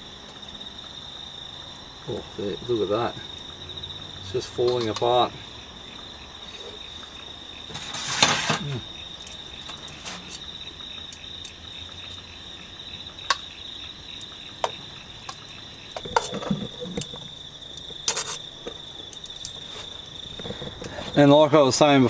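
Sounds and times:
crickets chirping: 0:00.0 - 0:22.0
metal tongs scraping a pot: 0:07.7 - 0:10.4, 0:16.0 - 0:17.2, 0:18.0 - 0:18.4.

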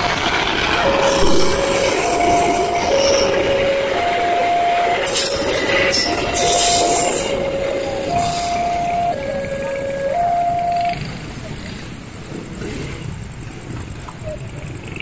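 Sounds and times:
high wheel squeal: 0:00.0 - 0:11.2
level crossing warning alarm: 0:00.0 - 0:11.5
train wheels rumbling on rails: 0:00.0 - 0:15.0.

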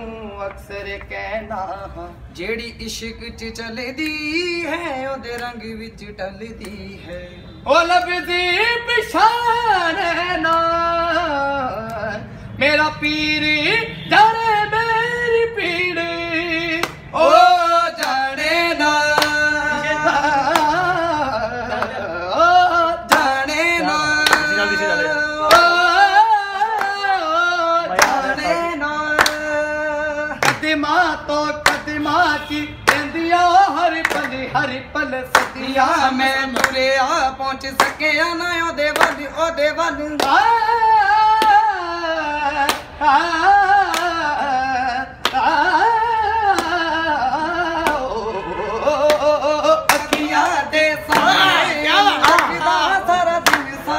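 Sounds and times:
man singing unaccompanied: 0:00.0 - 0:53.9
sharp hand clap: 0:04.0 - 0:04.3, 0:05.2 - 0:05.6, 0:06.6 - 0:06.9, 0:16.7 - 0:19.6, 0:20.4 - 0:20.9, 0:23.0 - 0:23.5, 0:24.1 - 0:24.8, 0:25.4 - 0:27.2, 0:27.9 - 0:34.6, 0:35.2 - 0:41.8, 0:42.5 - 0:43.0, 0:43.7 - 0:44.4, 0:45.2 - 0:45.6, 0:46.4 - 0:47.0, 0:47.8 - 0:53.9.

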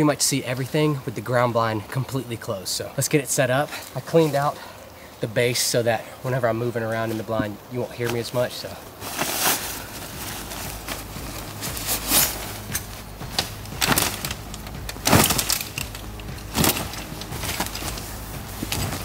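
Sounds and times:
fabric rustling and flapping: 0:08.2 - 0:19.0.

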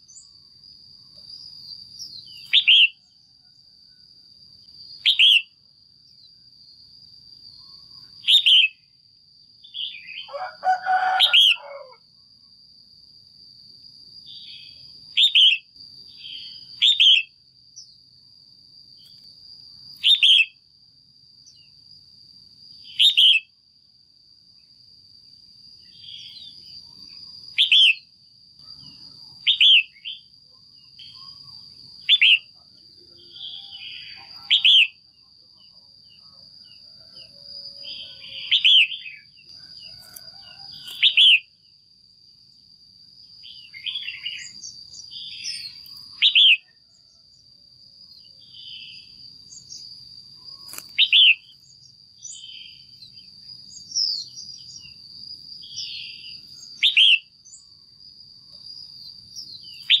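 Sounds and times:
bird calling: 0:02.4 - 0:03.0, 0:09.8 - 0:12.0, 0:32.0 - 0:32.5.

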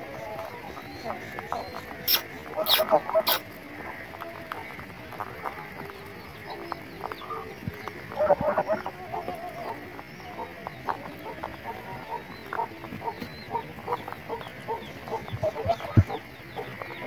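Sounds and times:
chickens clucking: 0:00.0 - 0:17.0
faint high peeps: 0:00.6 - 0:03.5.

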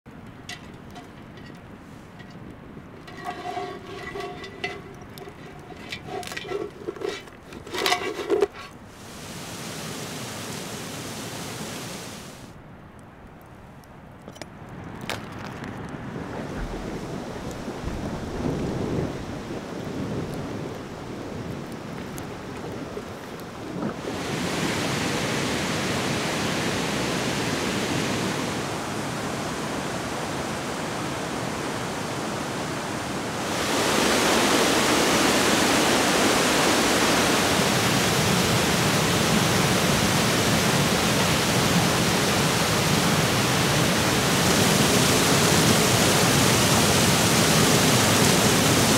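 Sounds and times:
waterfall rushing: 0:09.0 - 0:12.5, 0:24.0 - 0:48.9.

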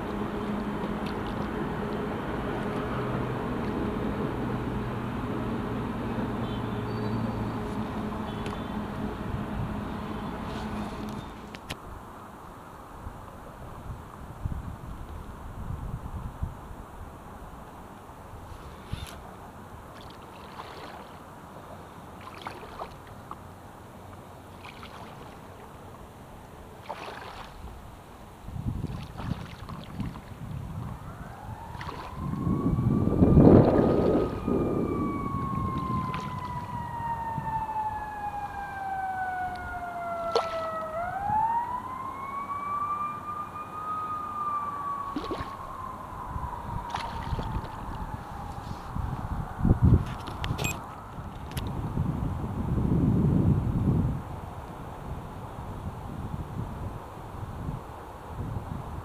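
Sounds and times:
paddle strokes splashing: 0:00.0 - 0:03.8, 0:18.5 - 0:30.4, 0:31.7 - 0:32.4, 0:33.6 - 0:34.4, 0:35.8 - 0:36.7, 0:40.2 - 0:40.8, 0:45.1 - 0:45.7, 0:46.9 - 0:48.0
emergency siren wailing: 0:31.0 - 0:49.8.

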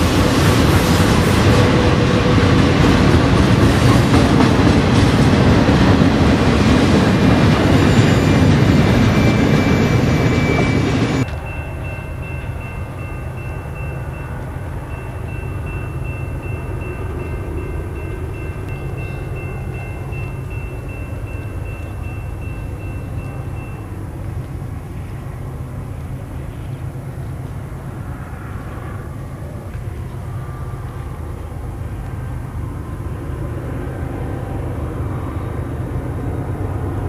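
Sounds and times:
distant train rumble: 0:00.0 - 0:37.0
freight train rolling past: 0:00.0 - 0:37.0
faint steady high tone: 0:07.7 - 0:33.4.

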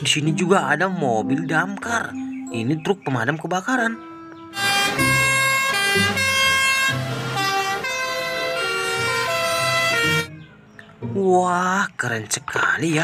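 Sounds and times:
fire engine sirens: 0:04.6 - 0:10.3.

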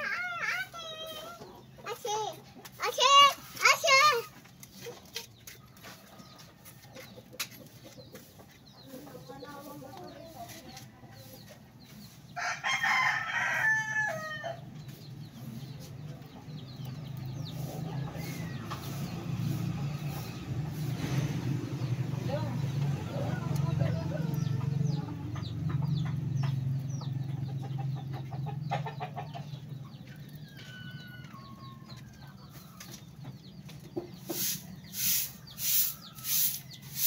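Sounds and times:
rooster crowing: 0:12.4 - 0:14.6.

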